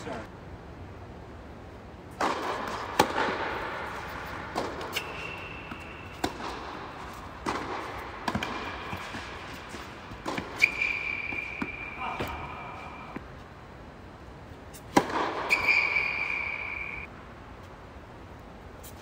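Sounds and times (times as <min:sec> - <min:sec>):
ball bouncing: 0:02.1 - 0:12.5, 0:14.8 - 0:16.2
rackets striking tennis ball: 0:02.1 - 0:13.4, 0:14.7 - 0:17.1
shoe squeaks: 0:04.9 - 0:06.2, 0:10.6 - 0:13.0, 0:15.5 - 0:17.1.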